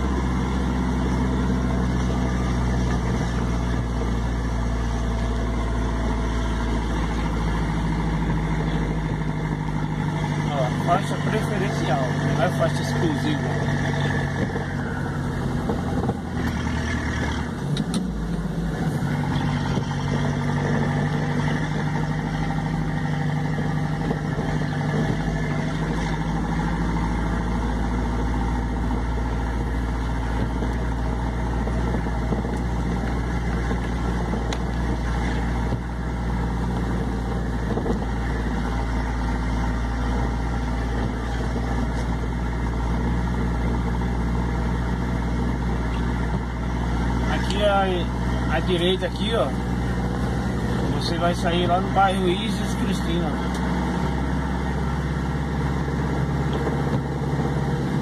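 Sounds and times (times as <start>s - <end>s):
road noise: 0.0s - 58.0s
vehicle engine hum: 0.0s - 58.0s.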